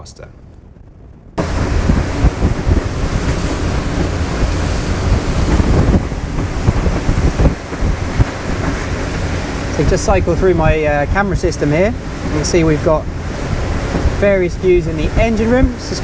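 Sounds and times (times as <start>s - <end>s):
wind buffeting microphone: 0.0s - 16.0s
water rushing past hull: 1.4s - 16.0s.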